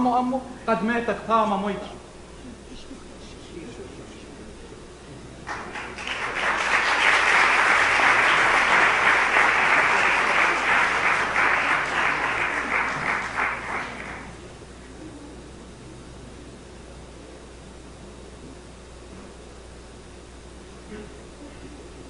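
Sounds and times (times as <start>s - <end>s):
audience applauding: 5.5s - 14.4s.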